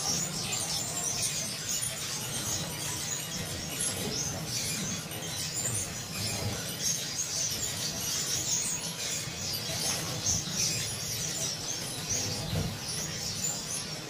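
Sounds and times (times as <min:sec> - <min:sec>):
finches chirping: 0:00.0 - 0:14.0.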